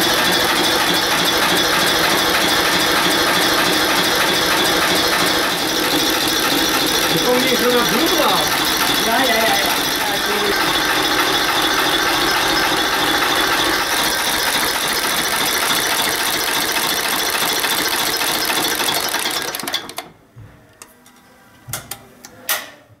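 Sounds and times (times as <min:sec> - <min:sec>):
diesel engine clattering: 0:00.0 - 0:17.3.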